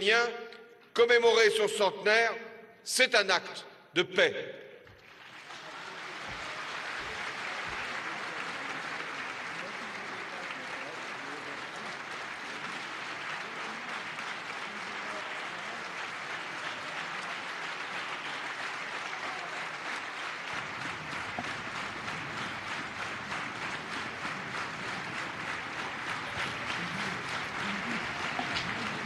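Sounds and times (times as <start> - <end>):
crowd applauding: 4.9 - 29.0.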